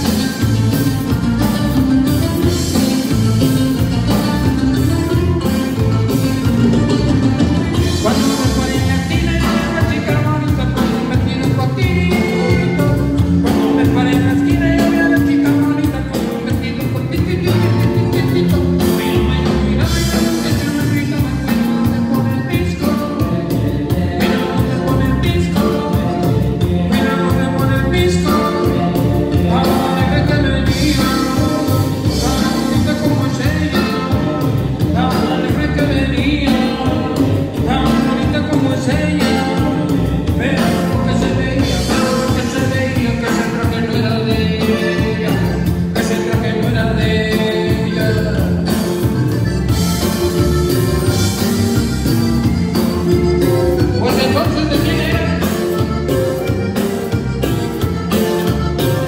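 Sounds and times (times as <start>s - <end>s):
live band playing through speakers: 0.0s - 59.0s
steady driving beat: 0.0s - 59.0s
strummed guitar: 0.0s - 59.0s
person singing lead vocal: 7.8s - 49.2s, 53.1s - 56.5s.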